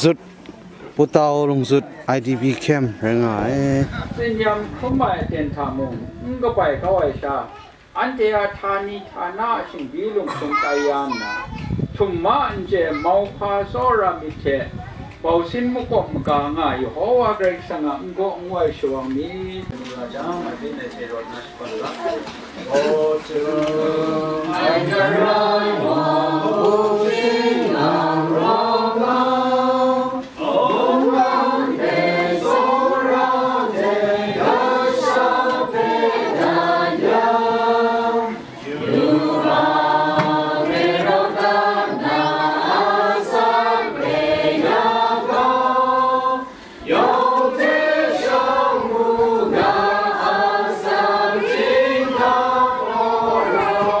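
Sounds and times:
crowd singing a hymn: 21.6 - 54.0.

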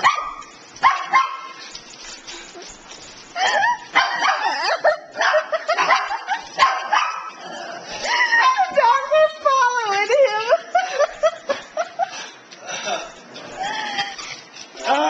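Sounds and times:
dogs barking and yipping: 0.0 - 9.3.

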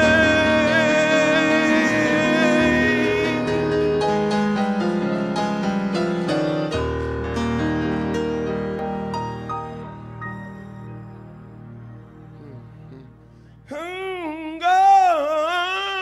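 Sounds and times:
man singing held note: 0.0 - 3.8
gospel piano: 0.0 - 16.0.

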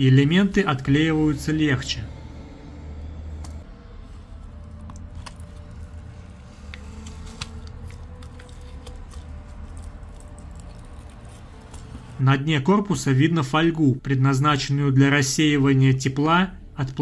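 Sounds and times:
steady low hum: 0.0 - 12.4.

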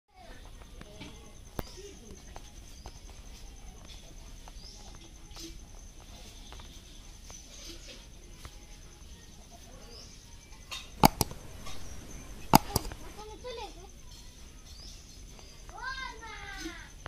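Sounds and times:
high-pitched insect drone: 0.2 - 17.0
sharp clicks: 11.0 - 13.2.

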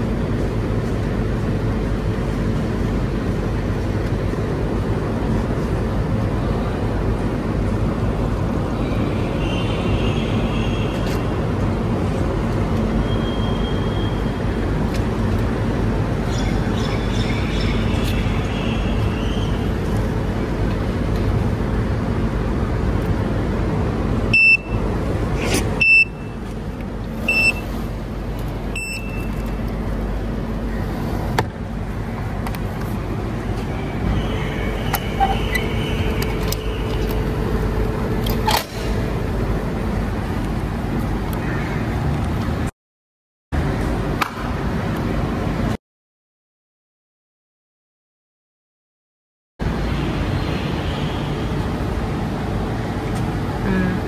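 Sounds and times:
short beeps: 24.3 - 24.8, 25.8 - 26.3, 27.3 - 27.7, 28.8 - 29.4.

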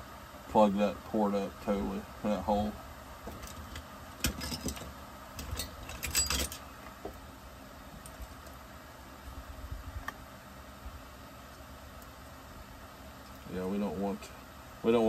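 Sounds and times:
metal tools clinking and rattling: 3.3 - 6.6.

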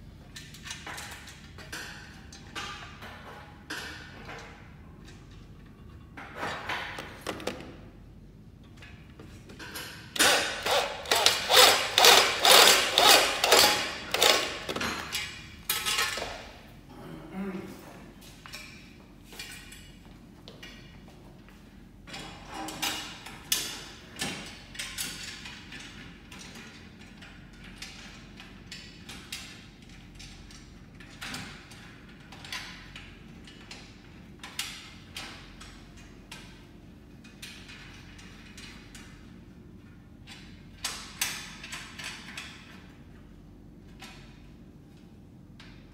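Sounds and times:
electric drill pulsing: 10.2 - 14.7.

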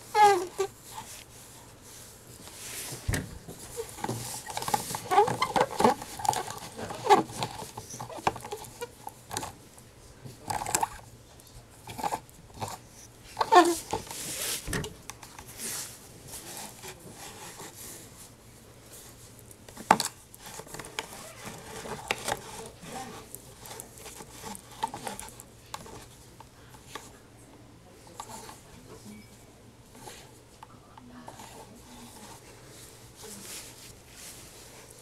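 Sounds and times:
fabric rustling: 31.4 - 35.0.

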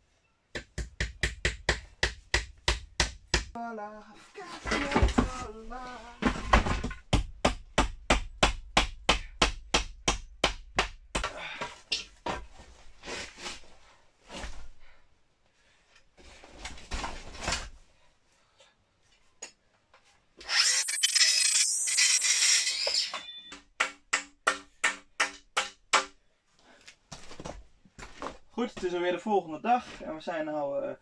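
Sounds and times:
circular saw running: 20.4 - 23.1
handsaw cutting wood: 20.4 - 23.2.

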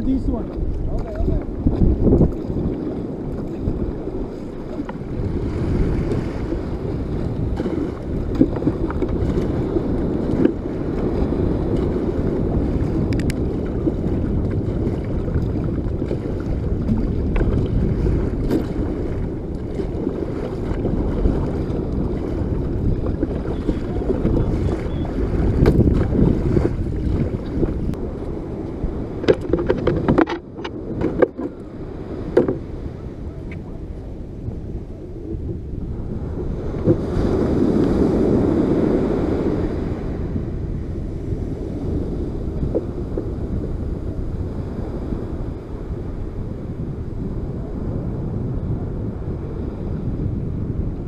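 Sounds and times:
paddle strokes splashing: 0.0 - 32.8
wind rumble on microphone: 0.0 - 51.0
water sloshing: 11.7 - 28.0, 29.2 - 31.6.

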